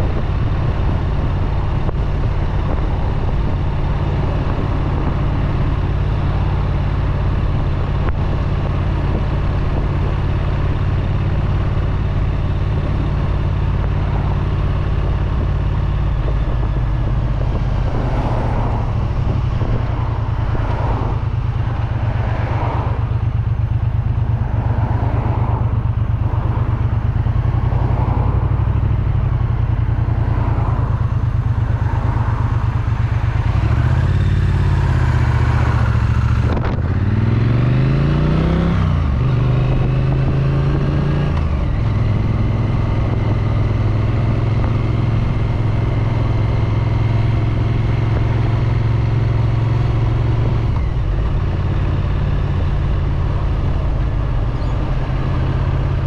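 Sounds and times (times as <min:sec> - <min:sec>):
motorcycle engine and exhaust: 0:00.0 - 0:56.0.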